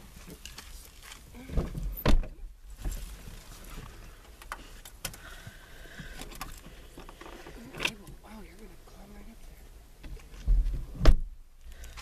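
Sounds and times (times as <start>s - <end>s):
thumps inside a car: 10.0s - 11.4s.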